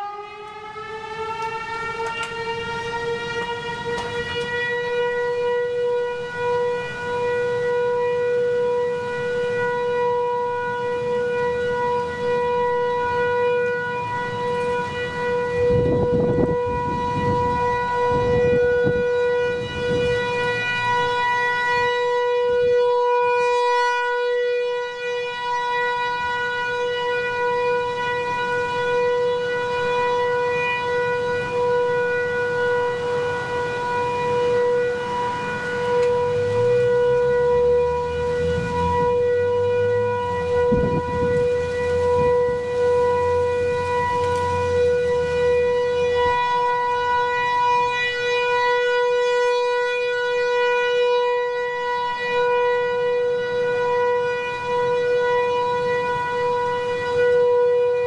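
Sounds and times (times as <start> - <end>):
warning siren wailing: 0.0 - 58.0
wind rumbling on microphone: 12.9 - 21.6, 30.9 - 47.2.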